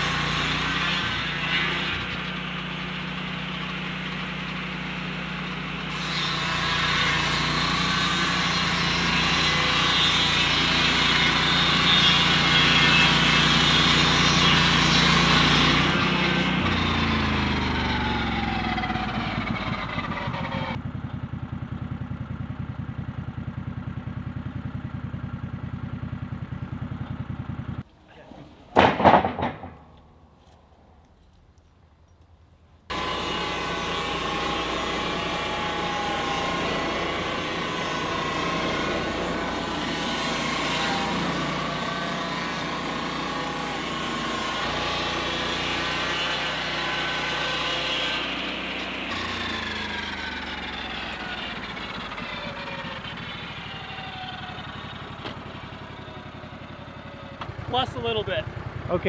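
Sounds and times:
circular blade cutting log: 0.0 - 3.2, 3.8 - 20.8, 32.9 - 56.6
sawmill engine running: 0.0 - 31.4, 32.9 - 59.0.

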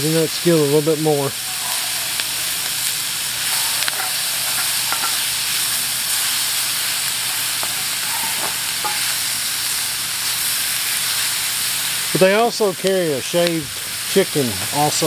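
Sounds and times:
food sizzling in a skillet: 0.0 - 15.0
spatula scraping the pan: 1.3 - 9.5.

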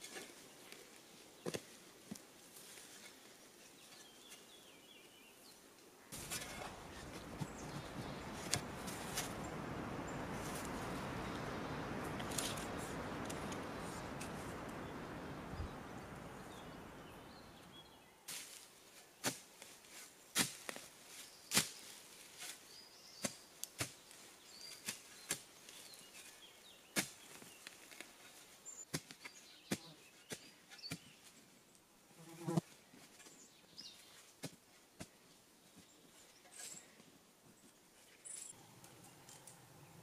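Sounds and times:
soft rushing hiss: 0.0 - 29.5
hand tool knocking in soil: 6.1 - 9.6, 23.2 - 24.1, 27.0 - 28.0.

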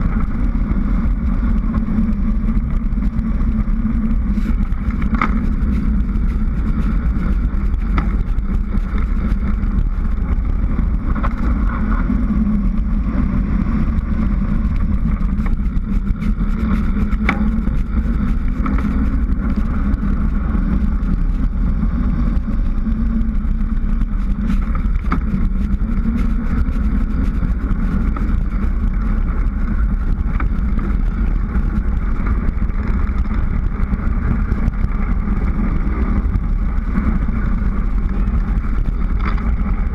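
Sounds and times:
faint bicycle clicks: 0.0 - 39.9
road noise: 0.0 - 39.9
wind rush: 0.0 - 39.9.

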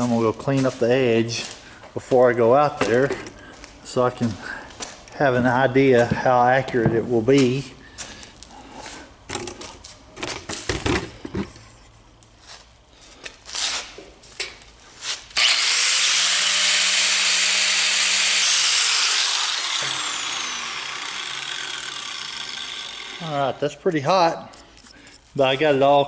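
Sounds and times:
angle grinder whining: 15.4 - 23.6
grinder sanding metal edge: 15.4 - 23.6.

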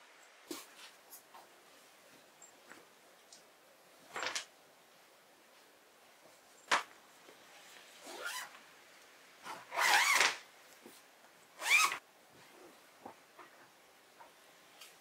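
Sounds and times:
zipper being pulled: 8.0 - 8.6, 9.4 - 10.4, 11.6 - 12.0.

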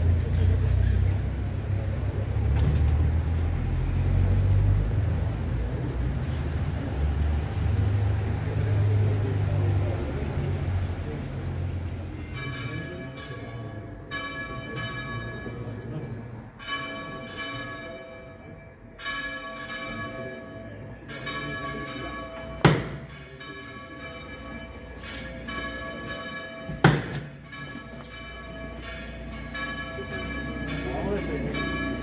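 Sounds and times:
bells ringing: 11.8 - 32.0
sharp loud bangs: 22.6 - 23.2, 26.7 - 27.4.

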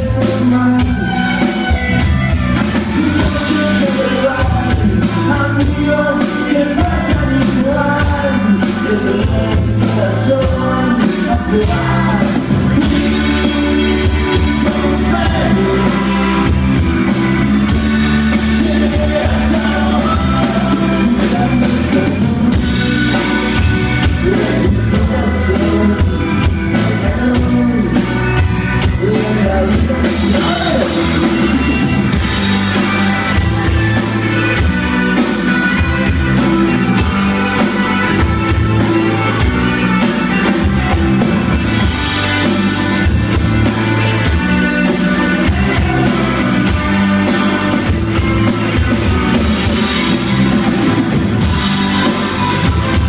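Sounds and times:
male lead vocal: 0.0 - 1.7, 2.8 - 32.3, 44.2 - 48.0
rock band playing: 0.0 - 53.0.

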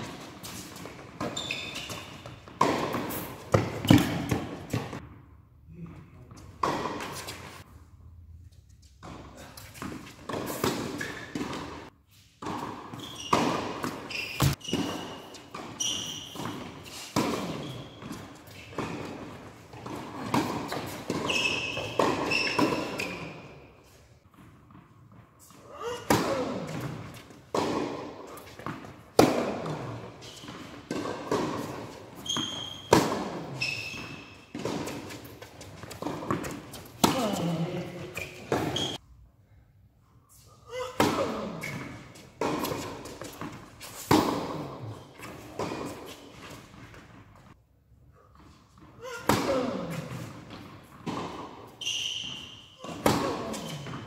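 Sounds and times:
shoes squeaking on court: 0.0 - 5.0, 6.2 - 7.6, 8.7 - 39.0, 40.7 - 47.6, 48.3 - 54.0
balls bouncing on hard court: 0.0 - 5.2, 9.0 - 23.5, 24.3 - 39.0, 41.0 - 47.6, 48.8 - 54.0
tennis balls struck by rackets: 2.4 - 5.1, 16.4 - 23.4, 26.0 - 39.0, 49.2 - 54.0.

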